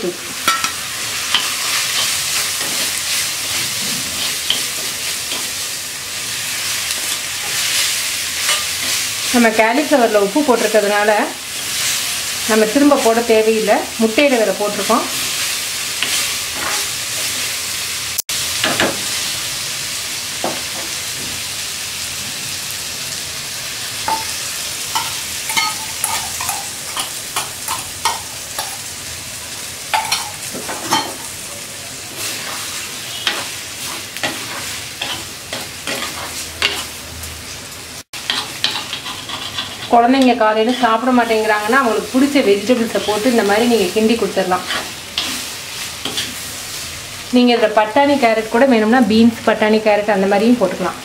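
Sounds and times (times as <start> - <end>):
food sizzling in a pot: 0.0 - 51.0
metal spoon scraping a pot: 38.3 - 40.0.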